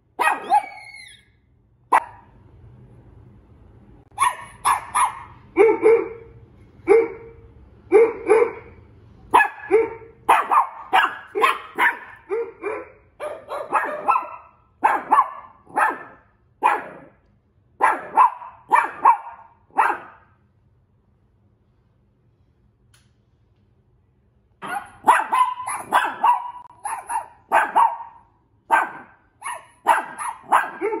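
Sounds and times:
dog barking: 0.2s - 1.1s, 1.9s - 2.3s, 4.2s - 17.2s, 17.8s - 20.4s, 24.6s - 31.0s.

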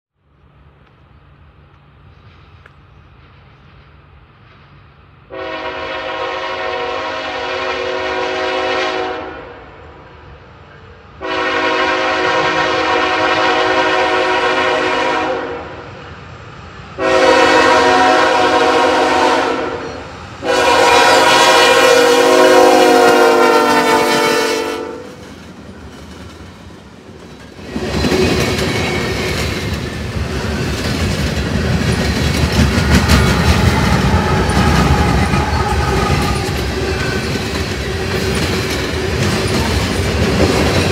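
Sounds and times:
train rumbling past: 0.2s - 40.9s
locomotive air horn blasts: 5.3s - 9.7s, 11.2s - 15.8s, 17.0s - 25.2s, 33.7s - 37.2s
wheels clicking over rail joints: 25.1s - 40.9s.

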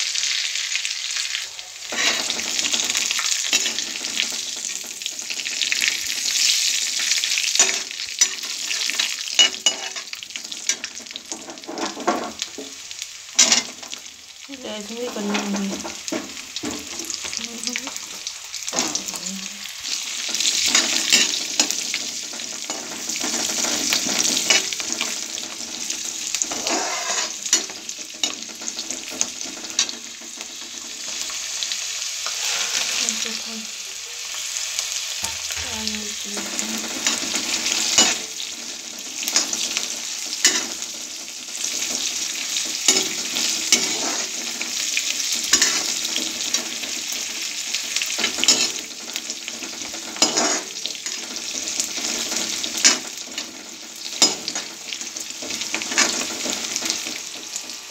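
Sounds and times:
spices sizzling in hot oil: 0.0s - 57.9s
metal spoon scraping pan: 1.8s - 6.7s, 7.4s - 12.4s, 19.9s - 30.4s, 32.2s - 33.5s, 35.2s - 38.6s, 39.2s - 44.6s, 45.2s - 47.2s, 47.8s - 53.2s, 54.1s - 57.3s.

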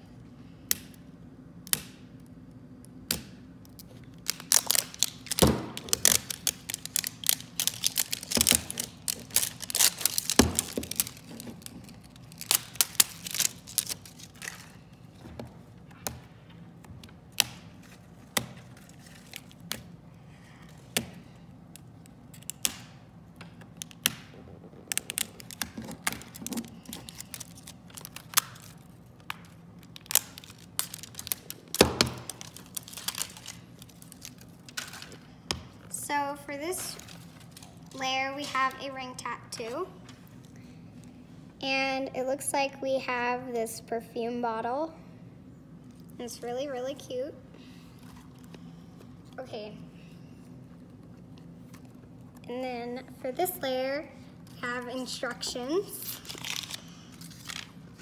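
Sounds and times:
plastic wrap crinkling and tearing: 3.7s - 15.2s, 17.6s - 19.9s, 23.7s - 35.3s, 36.8s - 38.7s, 56.0s - 58.0s.

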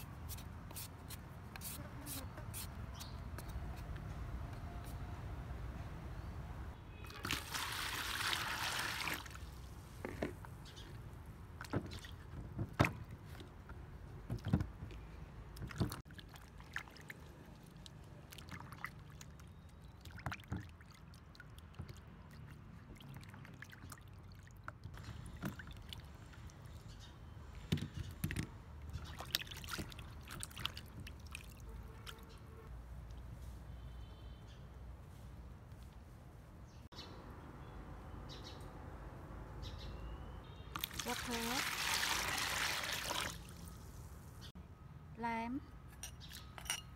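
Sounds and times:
water splashing in a plastic basin: 7.0s - 9.9s, 11.6s - 13.5s, 15.6s - 26.6s, 28.9s - 32.3s, 40.7s - 44.1s
water pouring into a basin: 7.1s - 9.6s, 40.8s - 43.9s.

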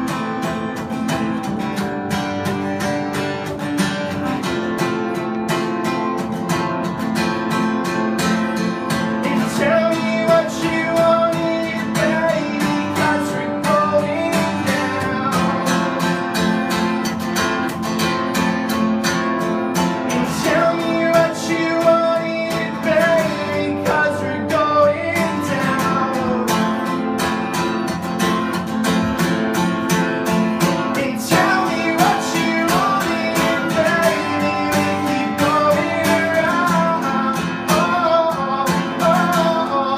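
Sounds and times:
acoustic guitar strummed: 0.0s - 39.9s
man singing wordless melody: 9.1s - 16.6s, 20.0s - 27.1s, 30.8s - 39.9s.

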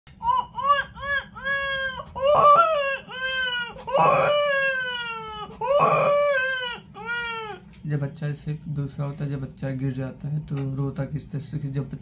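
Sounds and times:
man imitating infant crying: 0.2s - 7.6s.

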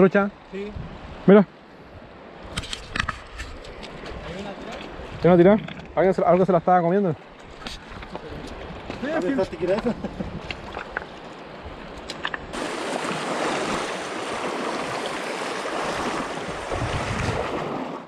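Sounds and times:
river water rushing: 10.5s - 18.0s.

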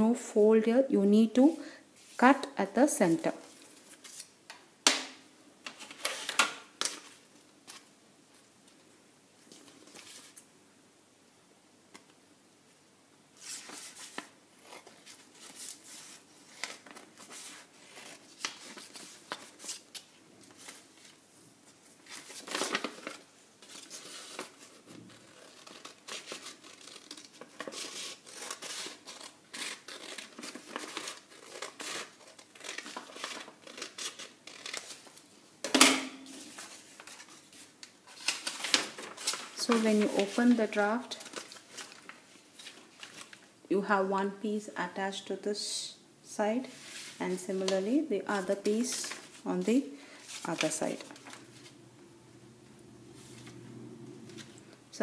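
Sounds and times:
paper rustling: 3.5s - 4.3s, 9.4s - 10.4s, 13.4s - 35.3s, 36.3s - 43.5s, 46.7s - 51.8s.

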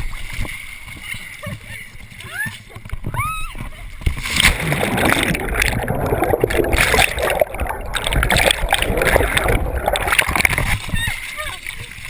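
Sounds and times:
splash into water: 4.1s - 12.0s
underwater churning and bubbling: 4.2s - 12.0s.

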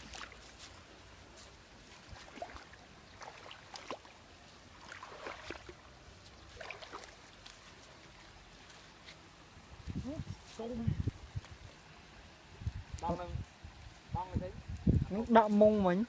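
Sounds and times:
low steady background noise: 0.0s - 16.0s
woven trap rustling on sand: 6.2s - 11.9s.

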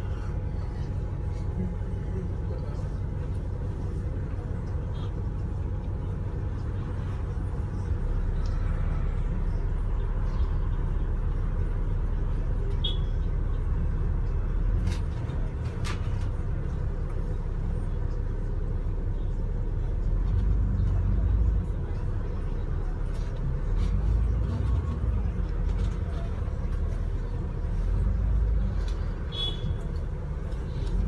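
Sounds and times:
bus engine and road noise: 0.0s - 31.0s.

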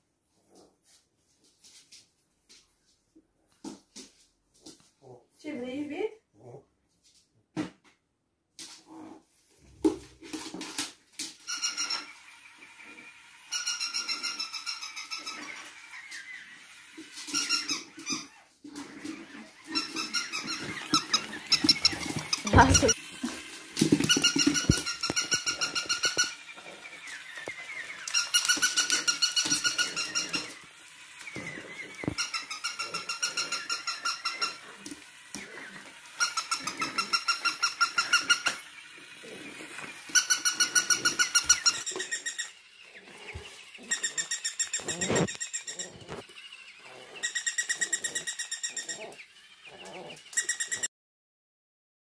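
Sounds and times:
puppy scuffling and chewing: 14.9s - 32.8s
toy dog electronic bark beeps: 47.2s - 49.2s, 50.2s - 50.9s.

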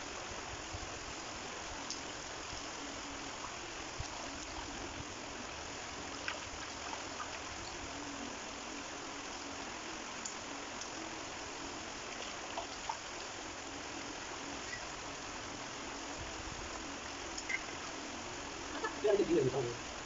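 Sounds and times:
shallow stream flowing: 3.3s - 7.9s.

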